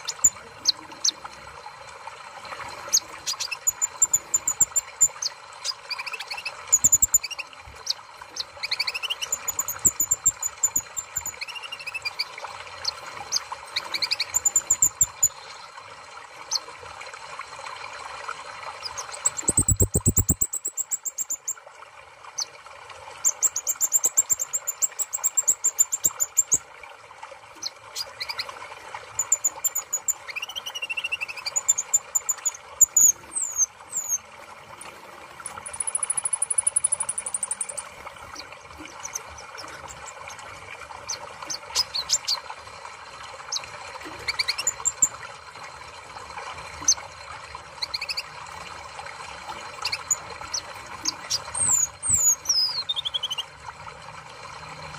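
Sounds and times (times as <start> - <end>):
bird trilling and chirping: 8.4 - 15.4, 18.8 - 21.3.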